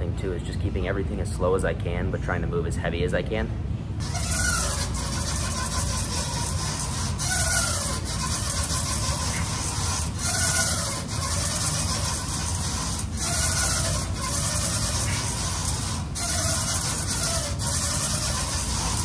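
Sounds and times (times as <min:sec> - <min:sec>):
steady low hum: 0:00.0 - 0:19.0
row machine rasping squeak: 0:04.0 - 0:19.0.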